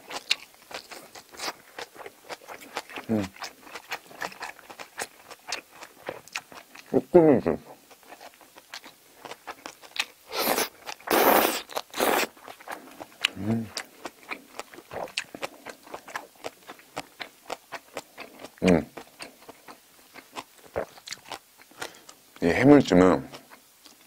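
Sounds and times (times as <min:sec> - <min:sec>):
wet chewing with smacks: 0:00.0 - 0:06.9, 0:07.8 - 0:22.4
loud slurps: 0:10.3 - 0:12.3.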